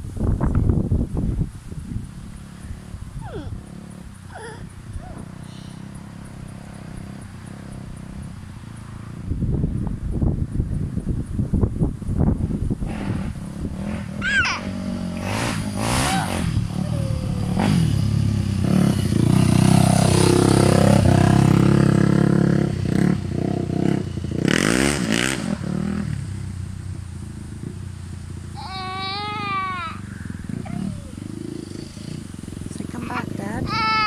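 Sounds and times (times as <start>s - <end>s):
dirt bike engine revving: 1.9s - 9.4s, 12.4s - 26.4s, 27.1s - 34.0s.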